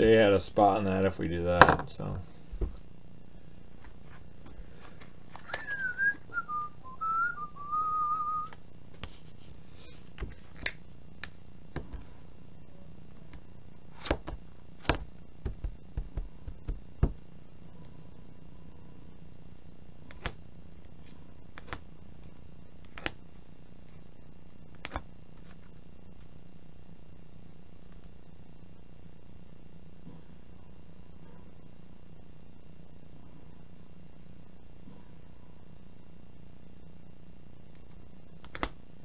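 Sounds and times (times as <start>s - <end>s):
low steady hum: 0.0s - 39.0s
person whistling: 5.4s - 8.5s.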